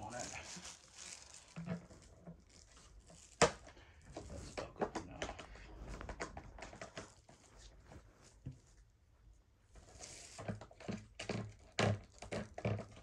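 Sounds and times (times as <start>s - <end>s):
small plastic taps and rattles: 3.2s - 7.4s, 10.3s - 13.0s.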